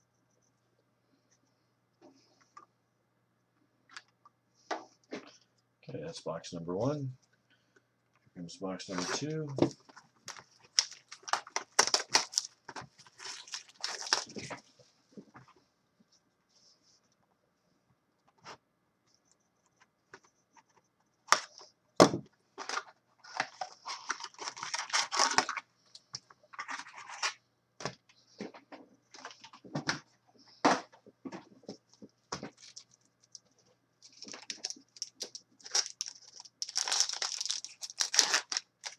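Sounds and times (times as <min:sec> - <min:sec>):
packaging crinkling and tearing: 0:08.9 - 0:14.7, 0:22.6 - 0:25.7, 0:32.4 - 0:38.9
foil packs crinkling and rustling: 0:08.9 - 0:14.8, 0:22.6 - 0:25.7, 0:32.4 - 0:38.9.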